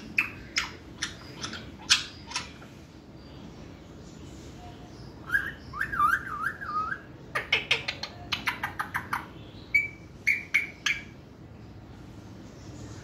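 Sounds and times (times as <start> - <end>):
parrot chirps: 0.0 - 2.8, 5.2 - 11.2
parrot whistling: 9.8 - 11.1.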